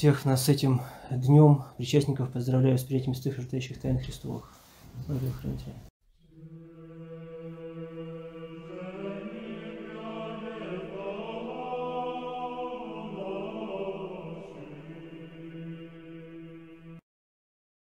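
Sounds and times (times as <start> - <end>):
choir singing chant over drone: 6.2 - 17.0.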